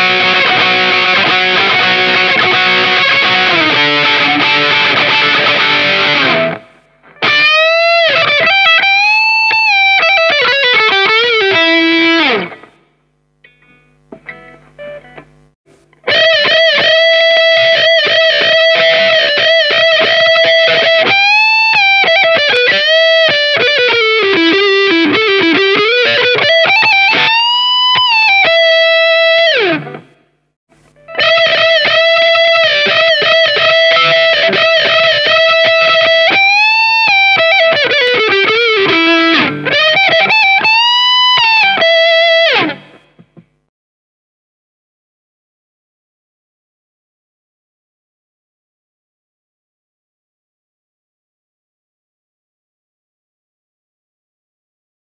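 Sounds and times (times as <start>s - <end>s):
electric guitar lead with bends: 0.0s - 12.8s, 16.0s - 30.2s, 31.0s - 43.4s.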